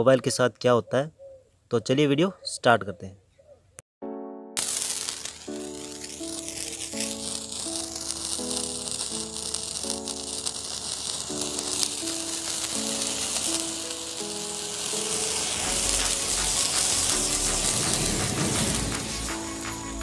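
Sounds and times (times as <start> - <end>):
background music: 4.0 - 20.0
sparklers fizzing crackle: 4.6 - 20.0
low rumble: 15.7 - 20.0.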